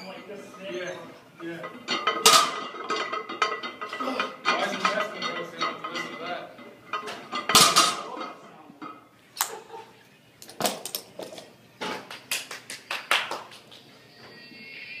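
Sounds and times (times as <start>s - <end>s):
barbell plates clanking on floor: 1.5s - 8.4s.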